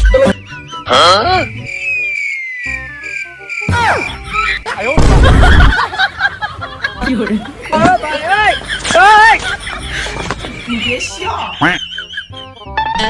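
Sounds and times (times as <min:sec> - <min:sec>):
warbling chirp: 0:00.4 - 0:05.0
falling whistle: 0:01.2 - 0:04.6.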